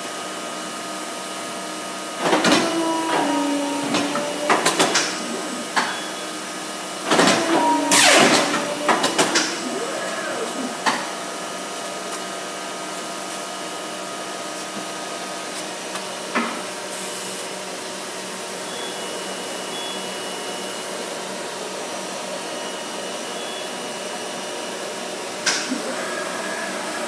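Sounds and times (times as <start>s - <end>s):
paper cutter motor whirring: 2.2s - 6.3s, 7.1s - 11.2s.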